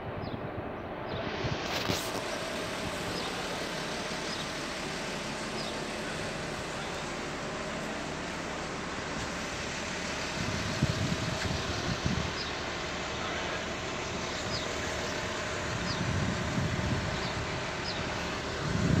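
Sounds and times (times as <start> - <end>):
wind gusts on microphone: 0.0 - 3.6, 9.2 - 12.7, 14.4 - 19.0
vehicle road and engine noise: 0.0 - 19.0.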